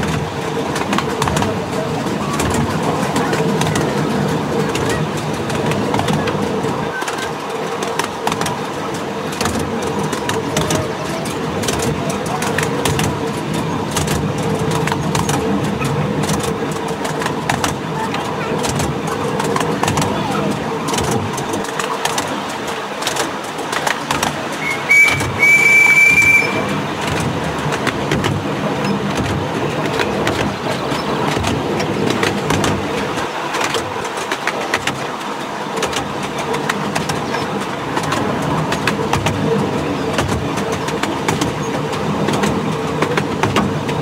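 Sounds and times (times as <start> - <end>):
train wheels rumbling on rail: 0.0 - 44.0
wheel clicks on rail joints: 0.0 - 44.0
steam locomotive whistle: 24.6 - 26.9.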